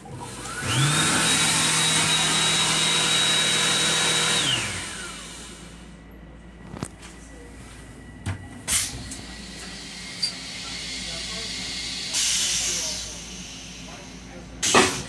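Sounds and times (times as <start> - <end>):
electric hand dryer blowing: 0.2 - 5.6.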